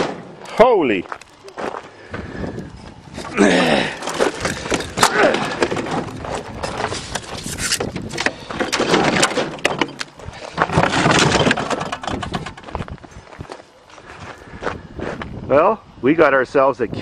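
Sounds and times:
knocks and rattles of broken fridge: 0:03.9 - 0:12.9.

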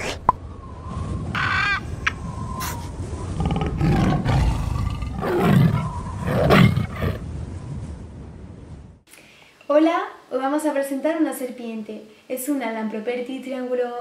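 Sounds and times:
big cat roaring: 0:03.3 - 0:07.2.

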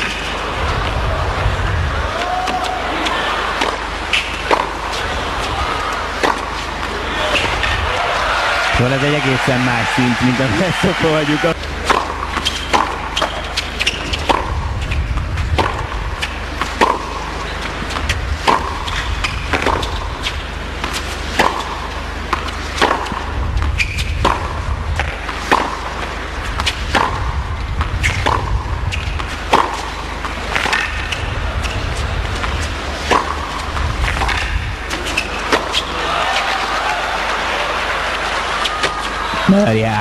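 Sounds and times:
racket hitting tennis ball: 0:03.6 - 0:05.0, 0:06.1 - 0:07.6, 0:11.8 - 0:14.7, 0:15.6 - 0:27.4, 0:28.0 - 0:31.8, 0:32.4 - 0:35.9
tennis ball bouncing: 0:03.6 - 0:05.0, 0:06.1 - 0:07.5, 0:11.8 - 0:35.9.

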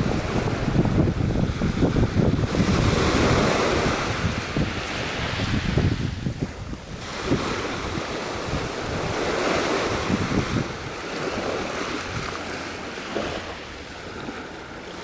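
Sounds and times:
small waves breaking on sand: 0:00.0 - 0:15.0
wind buffeting microphone: 0:00.0 - 0:15.0.

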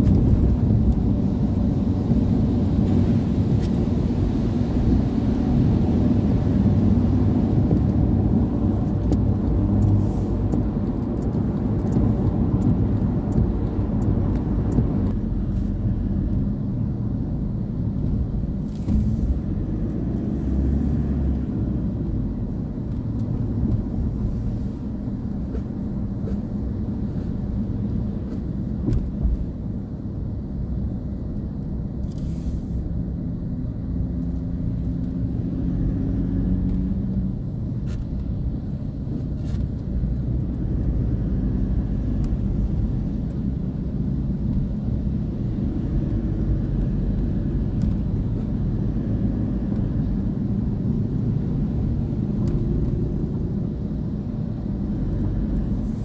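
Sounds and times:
car road rumble: 0:00.0 - 0:56.0
tyre hiss on wet road: 0:32.2 - 0:32.9, 0:55.7 - 0:56.0.

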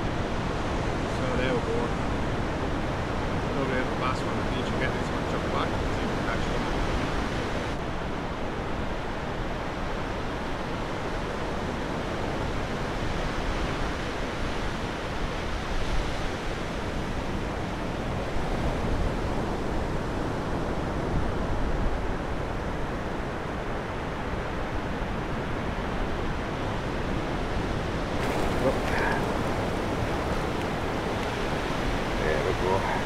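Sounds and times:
wind rumbling on microphone: 0:04.3 - 0:33.0
surf breaking on beach: 0:27.8 - 0:33.0.

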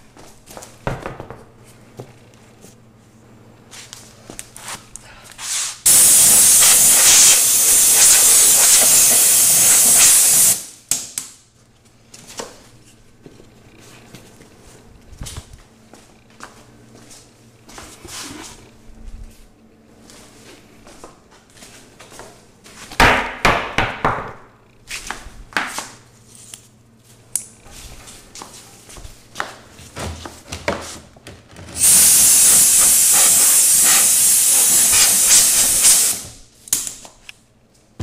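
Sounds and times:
compressed air blow gun hissing: 0:05.8 - 0:10.7, 0:31.8 - 0:36.4.

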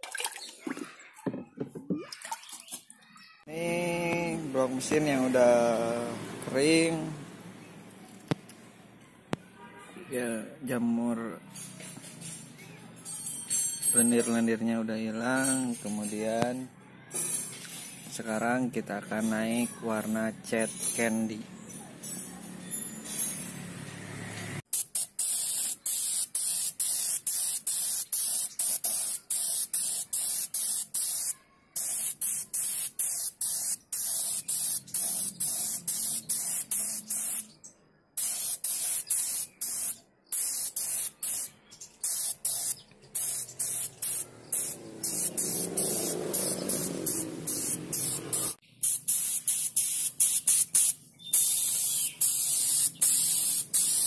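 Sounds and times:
spray gun hissing: 0:24.7 - 0:37.4, 0:38.2 - 0:54.0.

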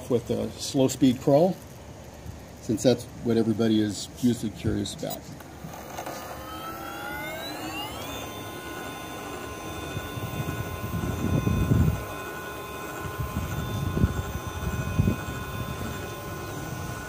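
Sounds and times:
electric motor whine: 0:00.0 - 0:17.0.

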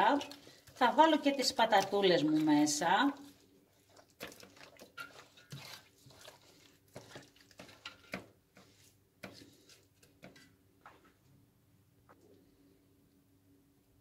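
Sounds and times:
wet squelches of hand massaging meat: 0:00.0 - 0:10.1.

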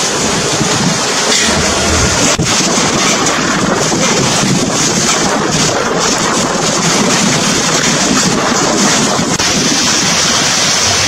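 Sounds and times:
heavy rain: 0:00.0 - 0:11.0
storm wind: 0:00.0 - 0:11.0
wind buffeting microphone: 0:00.0 - 0:11.0.

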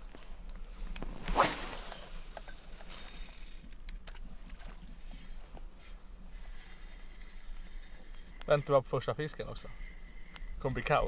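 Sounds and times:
line running off reel: 0:00.9 - 0:11.0
fishing rod cast swish: 0:01.1 - 0:03.4.

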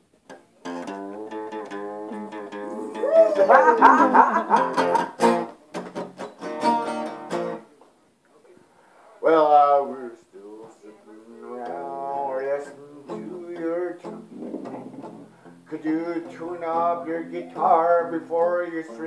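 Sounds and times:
acoustic guitar strumming: 0:00.3 - 0:07.7, 0:11.6 - 0:19.0.

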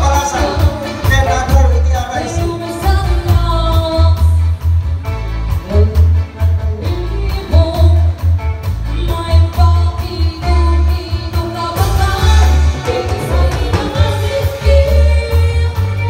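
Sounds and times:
live pop band playing: 0:00.0 - 0:16.0
woman singing: 0:02.3 - 0:04.6, 0:06.5 - 0:16.0.

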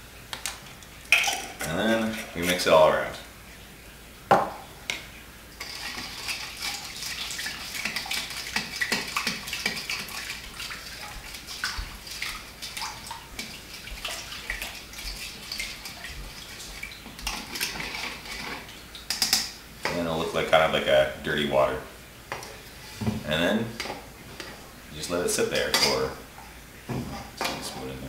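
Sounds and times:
spoon stirring water in bowl: 0:05.6 - 0:20.0, 0:25.4 - 0:26.2.

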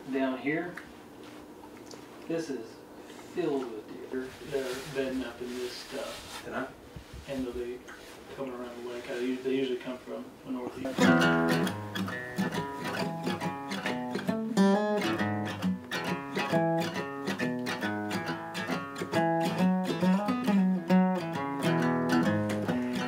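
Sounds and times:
acoustic guitar picking: 0:10.8 - 0:23.0.

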